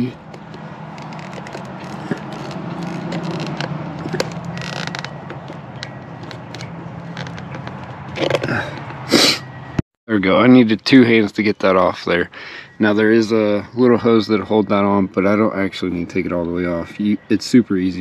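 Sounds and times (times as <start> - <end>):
clicks creaks and rubbing of rubber: 0.1 - 9.0.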